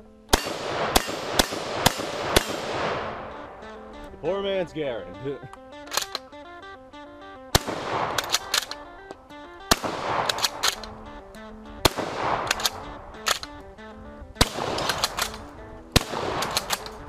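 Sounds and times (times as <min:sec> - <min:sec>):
background music: 0:00.0 - 0:17.0
gunshots with echo: 0:00.3 - 0:04.0, 0:07.5 - 0:08.8, 0:09.6 - 0:11.2, 0:11.8 - 0:13.6, 0:14.4 - 0:17.0
quick sharp clicks: 0:05.5 - 0:06.3, 0:08.0 - 0:11.5, 0:12.4 - 0:13.6.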